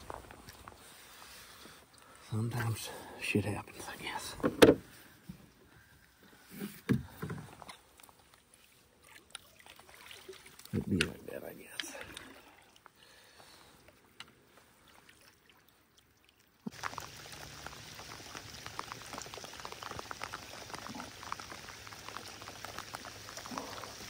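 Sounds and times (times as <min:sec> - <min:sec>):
faint water drips: 0:00.1 - 0:04.2, 0:04.9 - 0:24.0
rain falling on water: 0:16.6 - 0:24.0.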